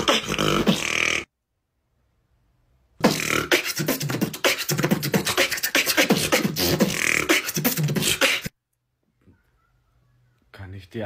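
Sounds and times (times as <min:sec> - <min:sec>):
beatboxing: 0:00.0 - 0:01.3, 0:03.0 - 0:08.5.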